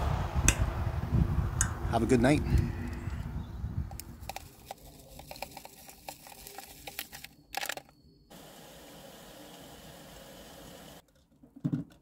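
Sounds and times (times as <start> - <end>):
packet rustling: 4.1 - 8.0
powder falling into mug: 4.2 - 7.9.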